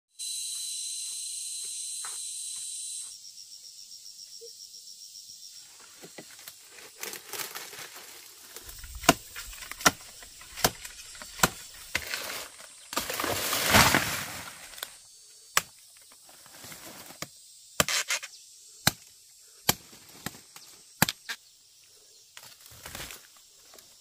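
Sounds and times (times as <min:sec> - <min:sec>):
insect pulsing chirp: 0:00.1 - 0:24.0
insects buzzing: 0:00.2 - 0:24.0
rustling: 0:06.4 - 0:15.0.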